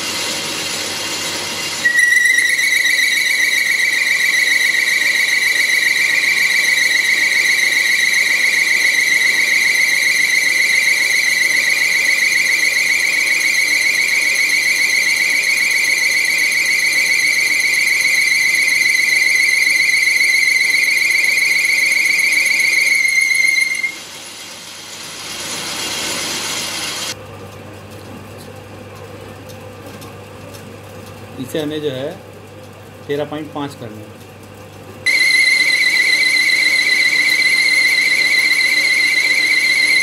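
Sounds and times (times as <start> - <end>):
lathe tool squealing on metal: 1.7 - 24.0, 35.1 - 40.0.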